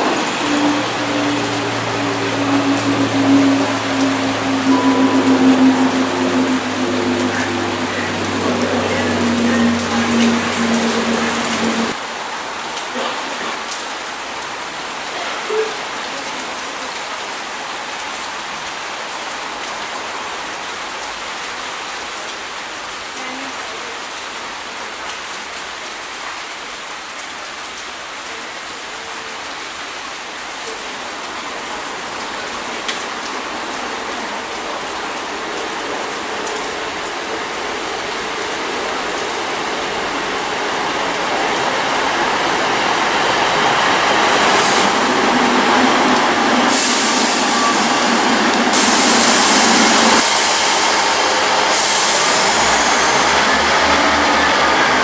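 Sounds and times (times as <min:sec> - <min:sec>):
diesel train approaching: 0:00.0 - 0:12.0, 0:30.7 - 0:55.0
steady rain falling: 0:00.0 - 0:55.0.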